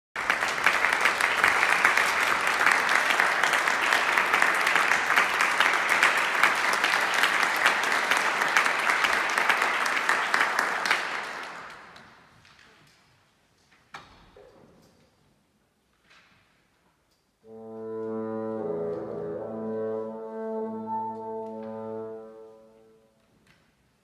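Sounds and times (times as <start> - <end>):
audience applauding: 0.2 - 12.2.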